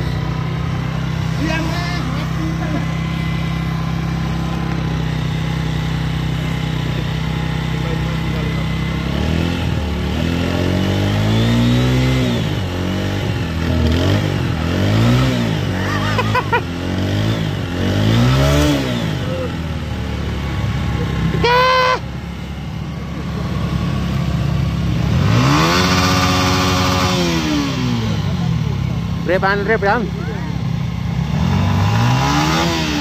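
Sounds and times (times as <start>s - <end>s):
motorcycle engine idling and revving: 0.0s - 33.0s.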